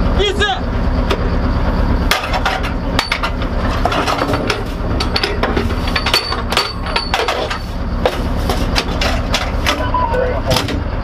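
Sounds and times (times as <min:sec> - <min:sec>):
low vehicle hum: 0:00.0 - 0:11.0
metallic clanks and knocks: 0:02.1 - 0:09.8
ringing metal tones: 0:02.5 - 0:03.6, 0:04.2 - 0:07.5.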